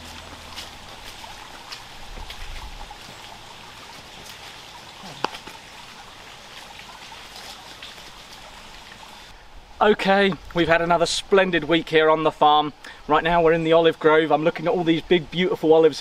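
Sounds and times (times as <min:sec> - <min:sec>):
outdoor background rush: 0:00.0 - 0:16.0.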